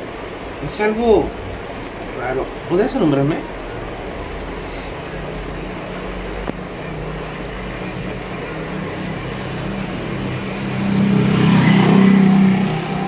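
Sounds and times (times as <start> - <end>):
engine running: 0.0 - 13.0.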